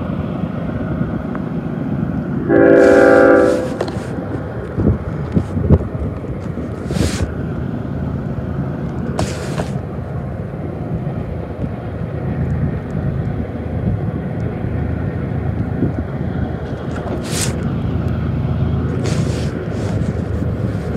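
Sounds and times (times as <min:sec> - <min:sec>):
freight train rumbling past: 0:00.0 - 0:20.9
short hisses: 0:02.8 - 0:04.2, 0:06.8 - 0:07.3, 0:09.2 - 0:09.8, 0:19.0 - 0:20.3.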